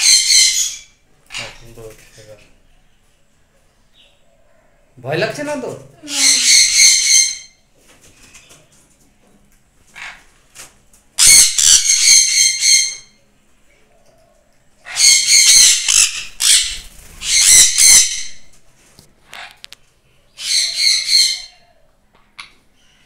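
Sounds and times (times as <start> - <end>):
parrots screeching: 0.0 - 1.8, 6.0 - 7.6, 9.9 - 10.3, 11.2 - 13.2, 14.8 - 18.6, 19.3 - 19.7, 20.3 - 21.8.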